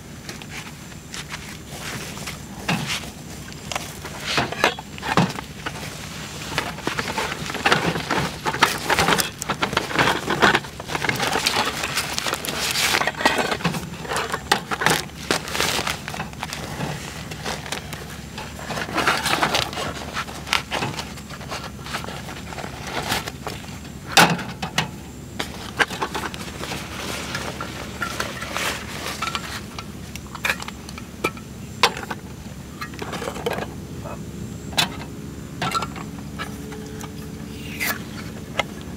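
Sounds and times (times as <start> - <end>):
bag rustling: 0.5 - 23.8, 25.4 - 30.4.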